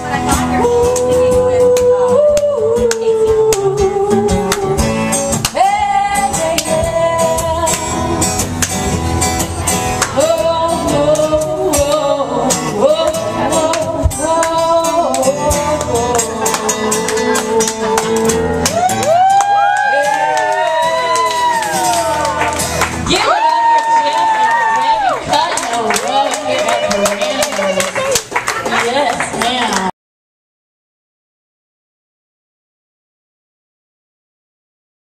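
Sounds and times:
guitar strumming: 0.0 - 28.2
person singing: 0.2 - 8.1, 10.1 - 22.2
audience whooping and cheering: 18.6 - 28.8.

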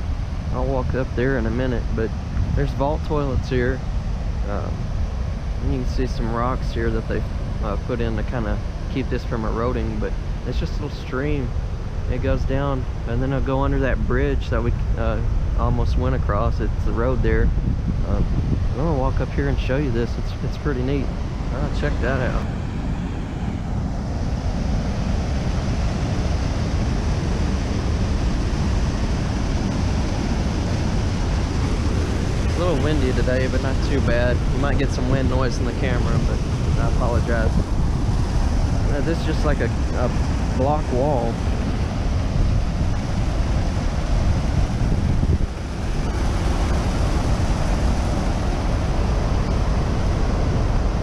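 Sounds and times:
wind buffeting microphone: 0.0 - 51.0
water rushing over spillway: 18.1 - 22.7, 23.9 - 51.0.

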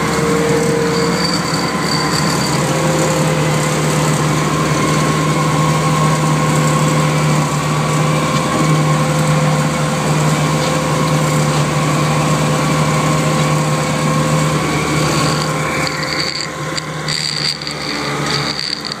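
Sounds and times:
mower engine drone with whine: 0.0 - 19.0
high thin tone: 0.2 - 3.3.

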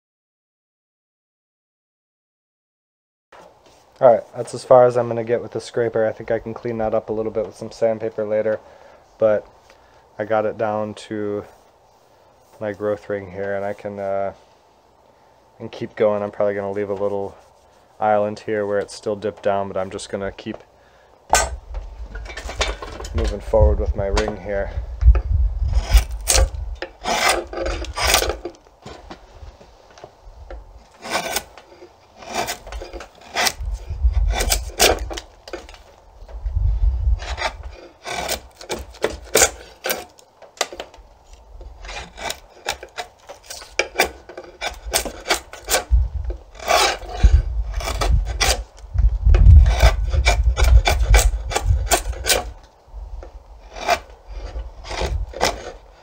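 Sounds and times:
draw knife scraping wood: 21.3 - 24.4, 25.1 - 29.2, 30.8 - 36.0, 37.1 - 52.6, 53.2 - 56.0.

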